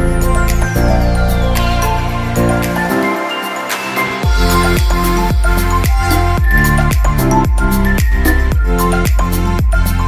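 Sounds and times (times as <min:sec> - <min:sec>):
electronic music with steady beat: 0:00.0 - 0:10.0
hi-hats: 0:02.9 - 0:10.0
deep kick drum: 0:04.2 - 0:09.8.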